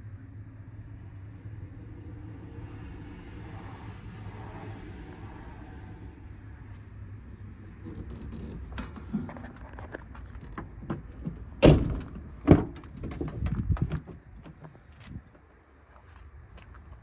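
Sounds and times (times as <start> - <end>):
door latch clicks and rattles: 7.8 - 14.0
truck door thunks shut: 10.4 - 14.1.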